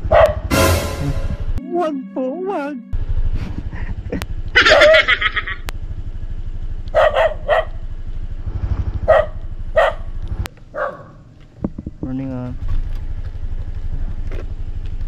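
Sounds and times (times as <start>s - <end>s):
dog barking: 0.0s - 0.5s, 6.9s - 7.8s, 9.1s - 10.1s, 10.7s - 11.2s.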